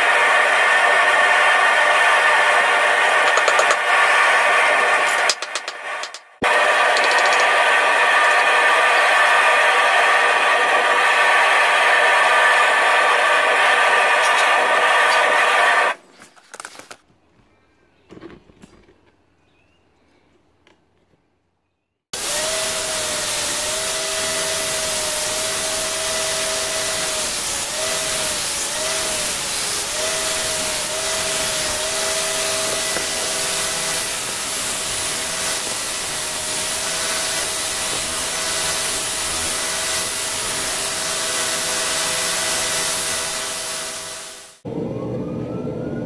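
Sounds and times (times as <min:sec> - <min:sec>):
belt grinder grinding steel blade: 0:03.1 - 0:08.4, 0:22.2 - 0:44.4.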